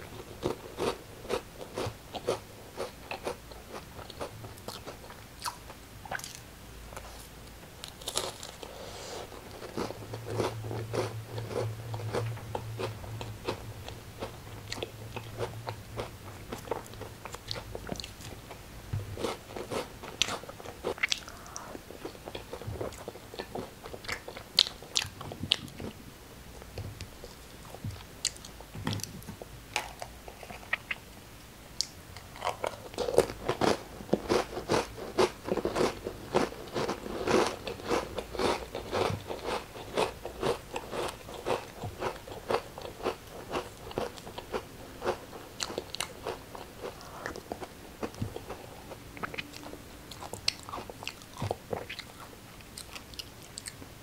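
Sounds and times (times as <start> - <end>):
crackers crunching: 6.2 - 13.6, 32.2 - 53.8.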